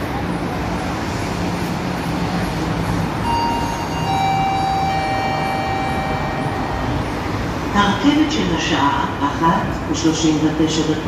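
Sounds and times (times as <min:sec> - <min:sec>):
railway station background noise: 0:00.0 - 0:11.0
traffic rumble: 0:00.0 - 0:11.0
high steady tones: 0:03.2 - 0:08.5.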